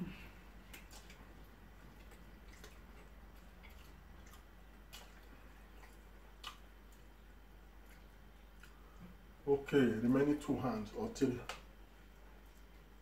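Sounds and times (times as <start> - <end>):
fingers picking at food: 0.6 - 7.1
chewing and lip smacks: 0.6 - 9.2.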